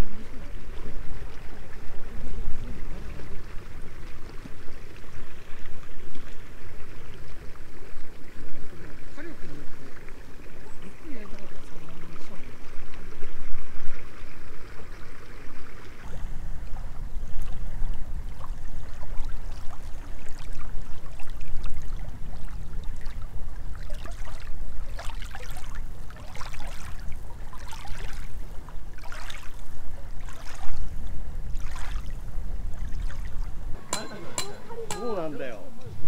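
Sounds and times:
waves lapping on pebbles: 17.6 - 33.6.

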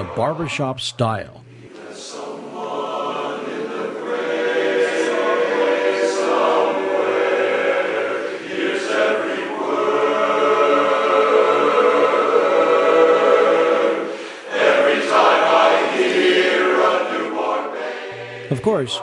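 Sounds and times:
men's chorus singing a cappella: 0.0 - 0.6, 1.7 - 19.0.

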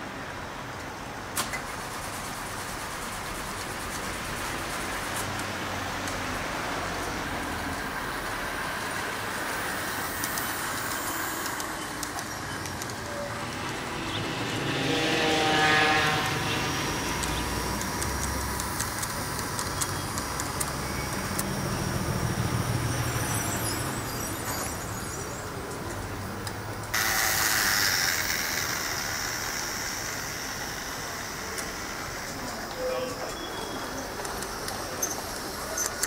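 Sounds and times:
ticks of wheels on track: 0.7 - 36.0
small electric motor whine: 26.9 - 32.8.

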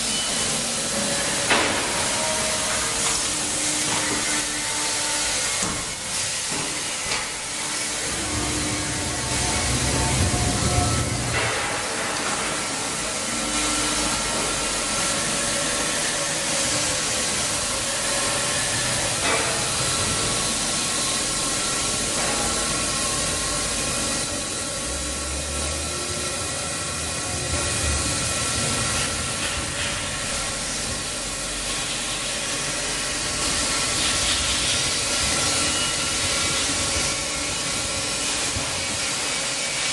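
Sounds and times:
milling machine hiss: 0.0 - 39.9
deep machine hum: 8.0 - 11.4.

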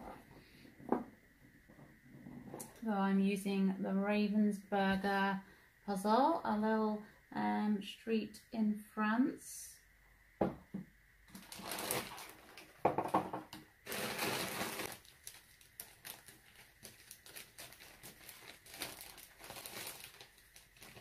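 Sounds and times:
plastic bag crinkling: 11.3 - 12.8, 13.8 - 21.0.

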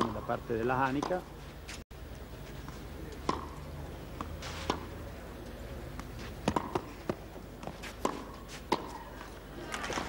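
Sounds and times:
low steady background noise: 0.0 - 10.0
racket hitting tennis ball: 3.2 - 3.6, 4.2 - 5.0, 6.0 - 10.0.

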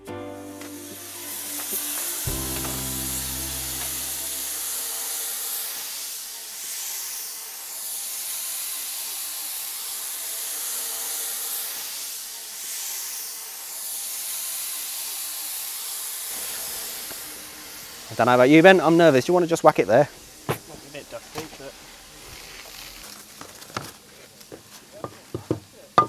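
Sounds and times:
music: 0.0 - 5.1
steam locomotive hissing: 0.0 - 26.0.

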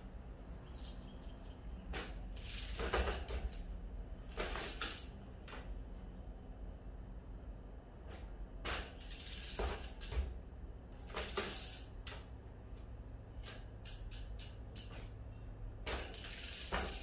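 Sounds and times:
folding bike metallic rattles: 1.9 - 5.8, 8.1 - 12.4, 13.3 - 17.0.

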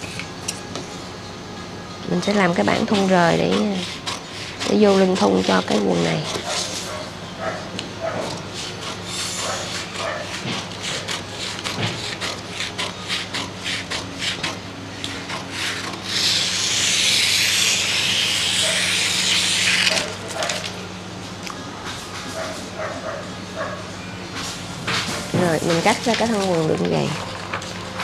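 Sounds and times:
shears snipping paper: 8.3 - 20.8
paper rustling hiss: 15.6 - 20.8.

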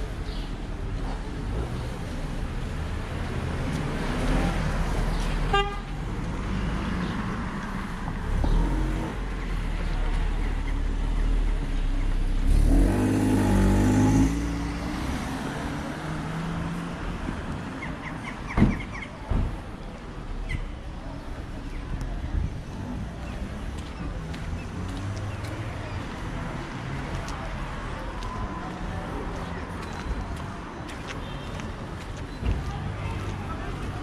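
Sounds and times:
car engines rumbling: 0.0 - 34.0
vehicle horn: 5.5 - 6.0.

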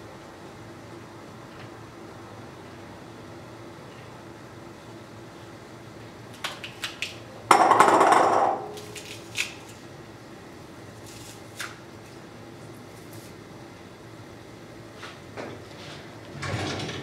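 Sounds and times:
garlic crunching in press: 8.7 - 9.8.

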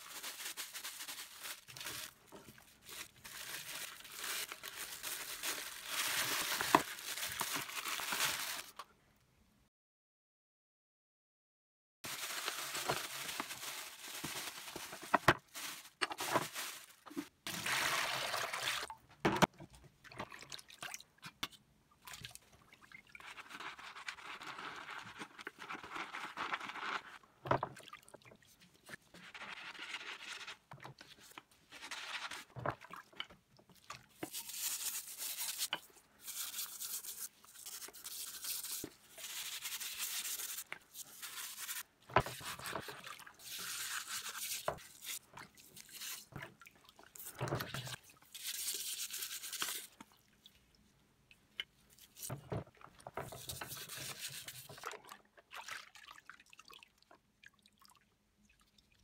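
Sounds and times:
water sloshing and dripping: 17.0 - 23.4, 27.3 - 29.0, 32.5 - 34.3, 42.0 - 43.4, 44.8 - 48.3, 54.5 - 59.0.

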